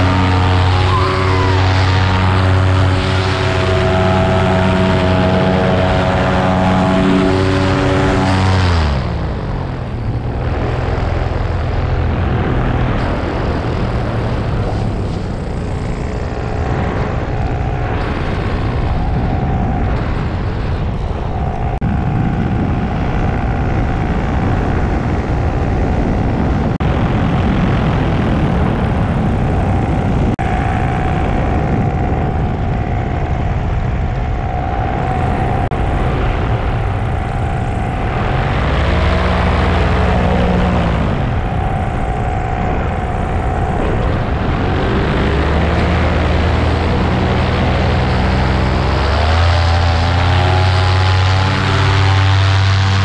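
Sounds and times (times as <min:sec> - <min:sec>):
paramotor engine and propeller: 0:00.0 - 0:53.0
wind rushing: 0:00.0 - 0:53.0.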